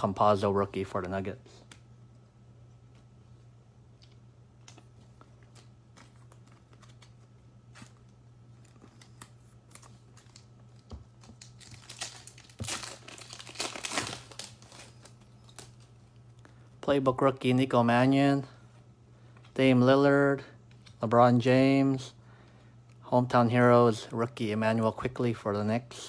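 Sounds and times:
foil wrapper tearing and crinkling: 0:08.6 - 0:15.9.

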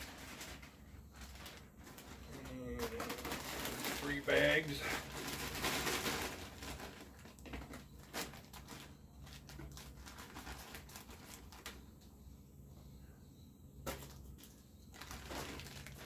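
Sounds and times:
plastic bag crinkling: 0:00.0 - 0:11.8, 0:13.9 - 0:16.0
low steady hum: 0:00.0 - 0:16.0.

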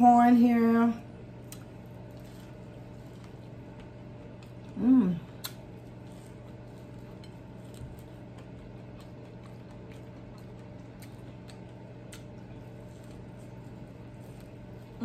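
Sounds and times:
steady low hum: 0:00.0 - 0:15.0
faint chewing: 0:01.4 - 0:15.0.

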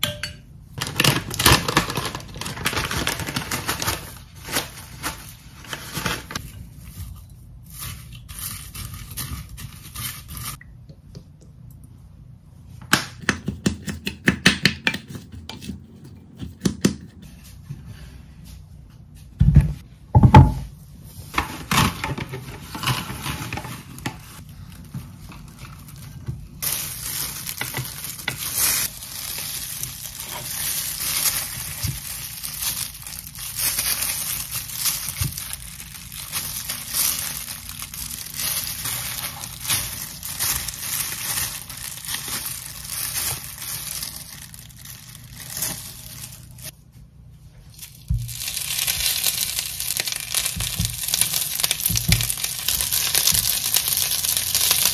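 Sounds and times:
plastic gloves rustling: 0:00.7 - 0:10.6, 0:20.8 - 0:54.9
plastic cling wrap crinkling and tearing: 0:00.8 - 0:10.6, 0:21.3 - 0:46.8, 0:47.6 - 0:54.9.

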